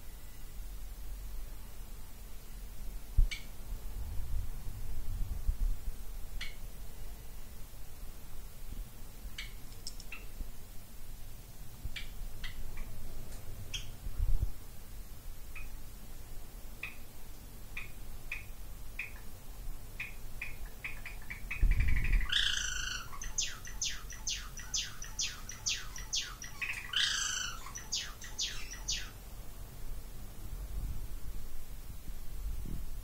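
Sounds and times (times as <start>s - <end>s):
sparrow singing: 20.0s - 29.2s.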